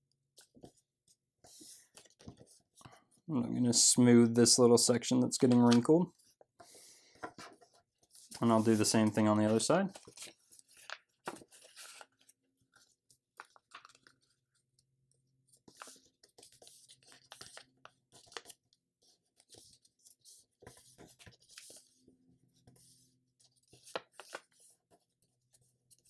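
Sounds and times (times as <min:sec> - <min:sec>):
paper rustling and crinkling: 0:01.5 - 0:02.7, 0:07.1 - 0:14.4, 0:15.5 - 0:22.0, 0:22.6 - 0:26.0.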